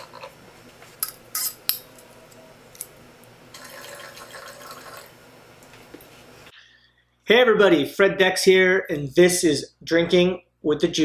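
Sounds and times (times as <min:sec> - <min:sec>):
wine pouring into a glass: 0:03.5 - 0:05.2.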